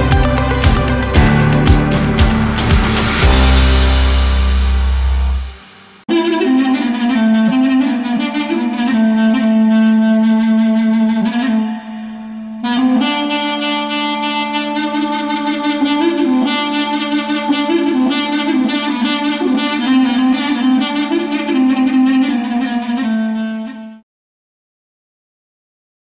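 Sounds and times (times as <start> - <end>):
instrumental background music: 0.0 - 23.2.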